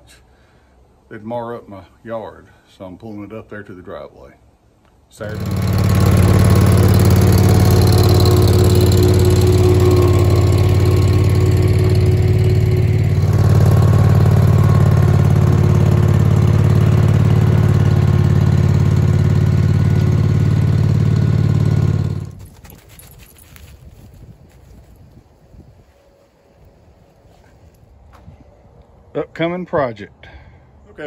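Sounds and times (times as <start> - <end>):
garden tractor engine running: 5.2 - 22.6.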